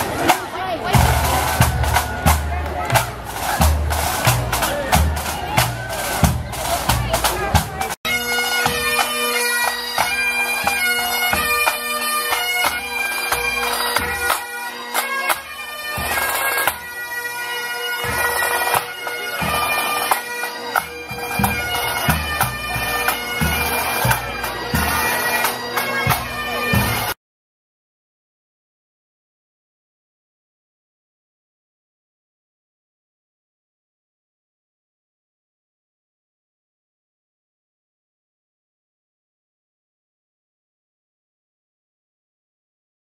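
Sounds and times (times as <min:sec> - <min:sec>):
bagpipes playing a tune: 0:00.8 - 0:27.2
bass drum beating: 0:00.9 - 0:08.0.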